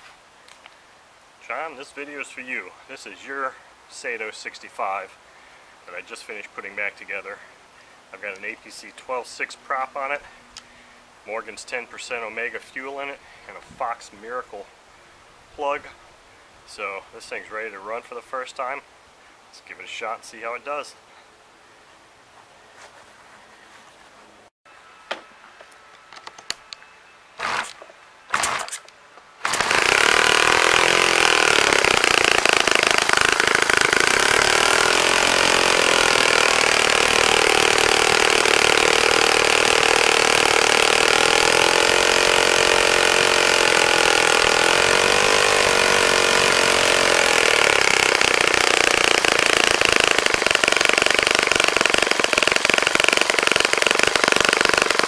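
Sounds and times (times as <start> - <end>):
model airplane engine running: 29.4 - 55.0.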